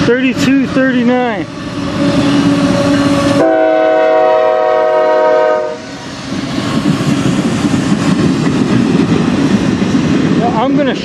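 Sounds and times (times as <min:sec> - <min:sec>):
train wheels rumbling on rails: 0:00.0 - 0:11.0
locomotive air horn chord: 0:02.0 - 0:05.9.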